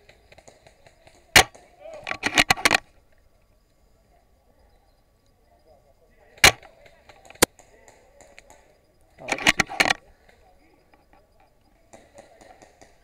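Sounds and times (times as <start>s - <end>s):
airsoft rifle shot: 1.0s - 2.8s, 6.4s - 6.7s
rifle bolt clicks: 1.4s - 2.8s.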